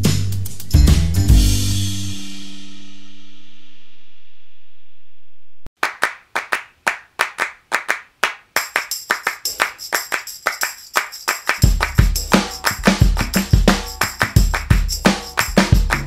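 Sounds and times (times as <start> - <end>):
deep bass beat: 0.0 - 2.2, 11.6 - 16.0
handclap rhythm: 5.8 - 16.0
shimmering high percussion: 8.6 - 16.0.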